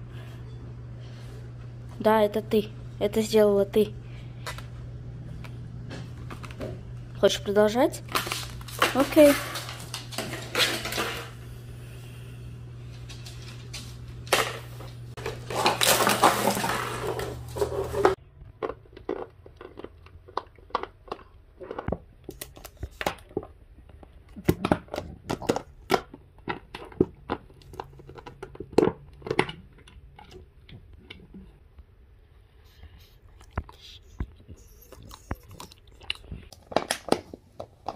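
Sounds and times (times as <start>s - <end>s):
low hum: 8.0s - 19.0s
plastic bottle crinkling: 15.2s - 20.0s.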